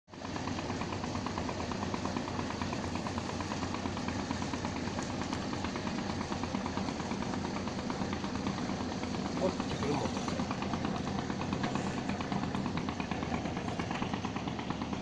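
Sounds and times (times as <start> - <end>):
boat engine running: 0.1 - 15.0.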